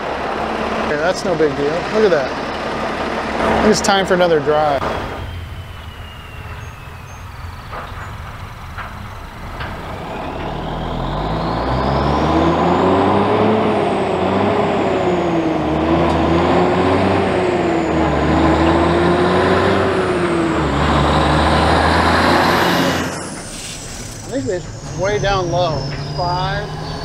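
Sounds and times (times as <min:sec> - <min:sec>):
diesel truck engine: 0:00.0 - 0:27.0
faint high whistle: 0:04.8 - 0:08.4, 0:23.0 - 0:27.0.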